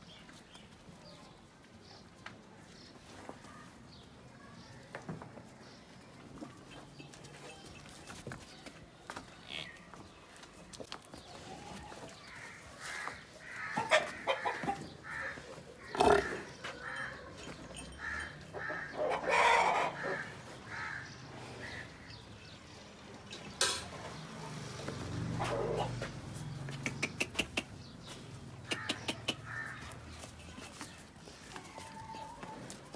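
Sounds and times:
chickens clucking: 11.0 - 22.2, 23.2 - 32.9.

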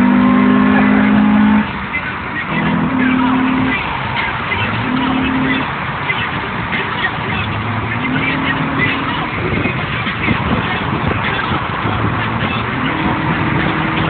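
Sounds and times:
car horn honking: 0.0 - 14.0.

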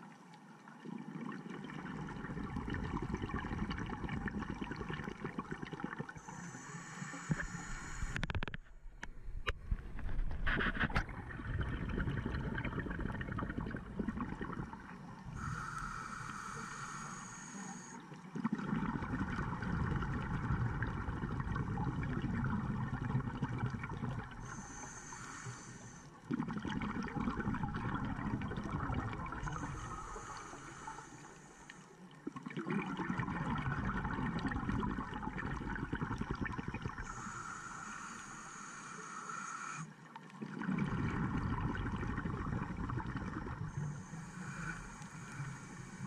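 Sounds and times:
exhaled bubbles gushing: 0.8 - 6.2, 10.0 - 15.5, 18.3 - 24.7, 26.2 - 31.0, 32.2 - 37.3, 40.3 - 44.1
regulator inhalation hiss: 6.2 - 8.4, 15.4 - 18.0, 24.4 - 26.1, 29.4 - 32.0, 37.0 - 40.0, 43.7 - 46.0.

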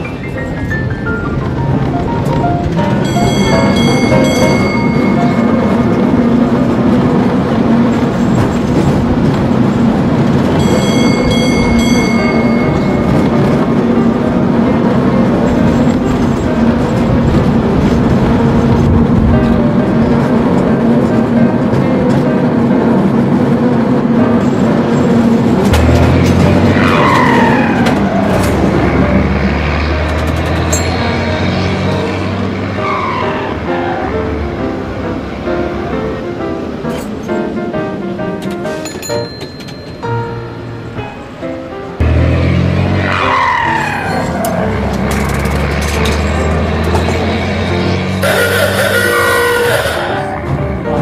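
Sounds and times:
streetcar rumbling on rails: 0.0 - 51.0
deep engine drone: 0.9 - 36.9, 41.9 - 51.0
bell ringing: 2.9 - 6.4, 10.4 - 14.1, 30.6 - 31.9, 38.7 - 40.7
vehicle passing with falling whine: 25.3 - 34.4, 42.0 - 51.0.

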